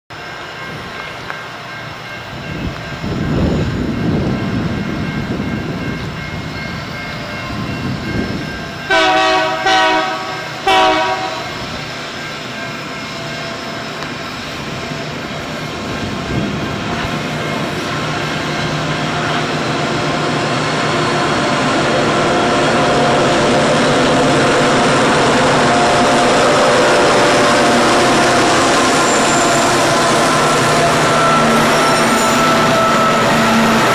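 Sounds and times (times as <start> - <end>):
train engine and wheel noise: 0.1 - 33.9
train horn blasts: 8.9 - 11.7, 25.5 - 33.9.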